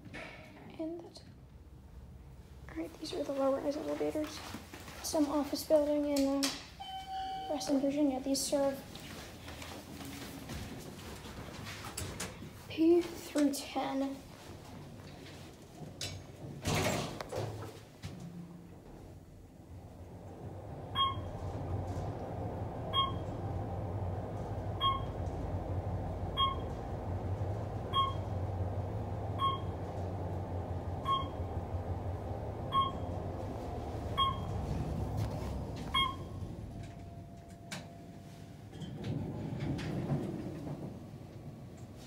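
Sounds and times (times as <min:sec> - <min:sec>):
elevator rumble: 0:00.0 - 0:42.0.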